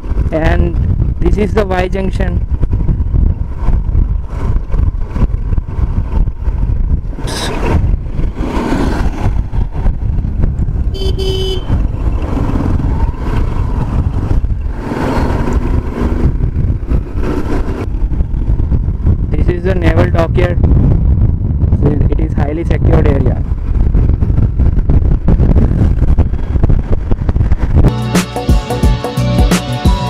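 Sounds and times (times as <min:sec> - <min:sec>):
motorcycle engine and tyre rumble: 0:00.0 - 0:27.9
wind rushing over microphone: 0:00.0 - 0:27.9
motorcycle horn toot: 0:10.9 - 0:11.8.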